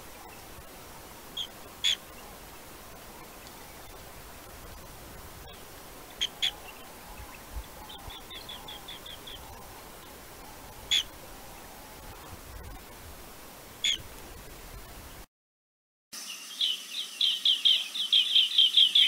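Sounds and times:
bird chirping: 0:05.4 - 0:12.3, 0:16.2 - 0:19.0.

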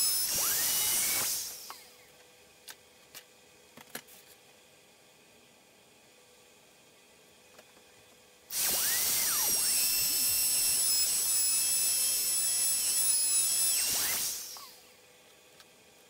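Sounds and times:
electric router whining: 0:00.0 - 0:02.1, 0:08.5 - 0:14.9.

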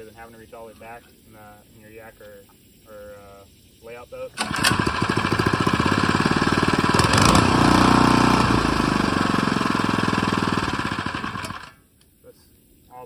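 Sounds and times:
small engine idling and revving: 0:04.4 - 0:11.8.

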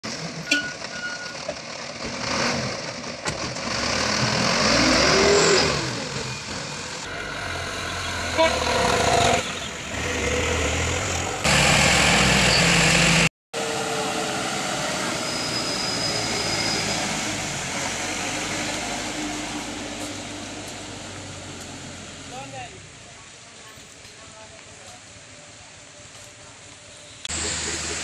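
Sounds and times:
dump truck engine revving: 0:01.6 - 0:22.3, 0:27.3 - 0:28.0
tractor engine revving: 0:01.6 - 0:22.3, 0:27.3 - 0:28.0.

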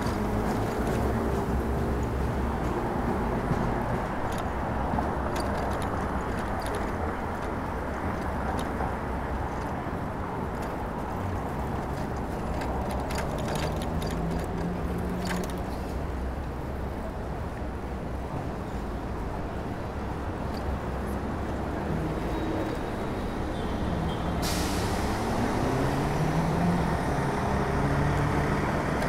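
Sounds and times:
light clicks and rattles: 0:03.5 - 0:09.8, 0:10.5 - 0:16.0.

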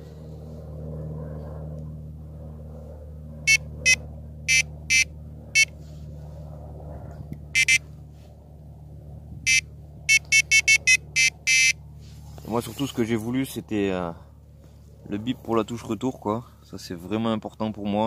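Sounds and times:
short electronic beeps: 0:04.5 - 0:05.0, 0:07.6 - 0:07.8, 0:09.5 - 0:11.8.

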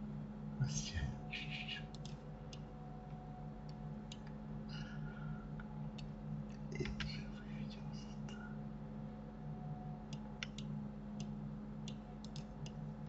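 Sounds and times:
low electrical hum: 0:00.0 - 0:13.0
computer mouse and keyboard clicks: 0:06.8 - 0:07.2, 0:10.4 - 0:11.3, 0:11.9 - 0:12.8.

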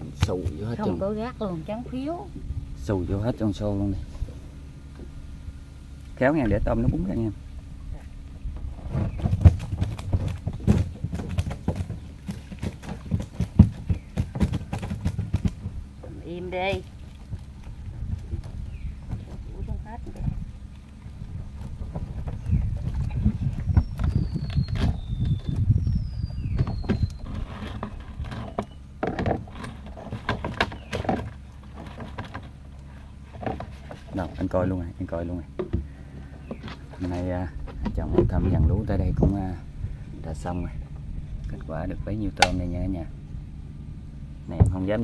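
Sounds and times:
shrimp clicking against bucket: 0:09.1 - 0:19.4.

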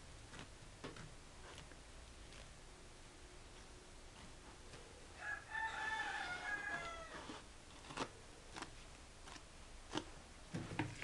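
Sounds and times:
rooster crowing: 0:05.2 - 0:07.4.

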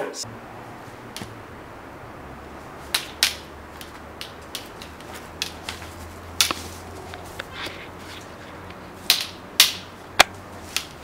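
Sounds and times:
wooden staves clacking together: 0:02.8 - 0:11.0.

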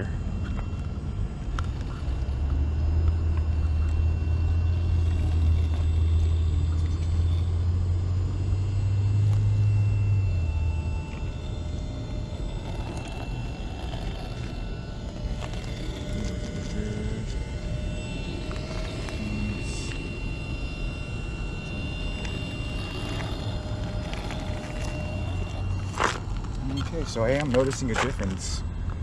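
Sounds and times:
low rumble: 0:00.0 - 0:29.0.

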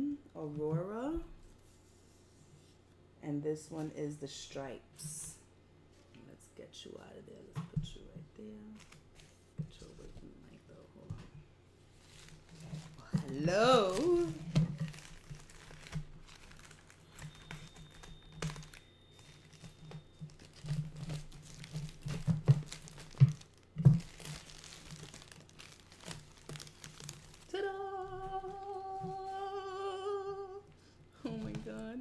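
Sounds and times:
bubble wrap crinkling: 0:08.5 - 0:10.9, 0:11.8 - 0:32.0
woman humming: 0:13.0 - 0:14.5, 0:27.5 - 0:32.0.

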